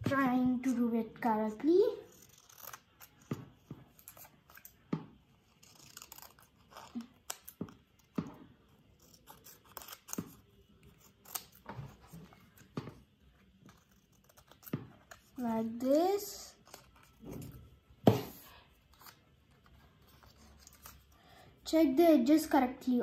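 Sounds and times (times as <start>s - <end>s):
scissors snipping paper: 2.0s - 12.7s, 13.4s - 17.5s, 18.9s - 21.1s.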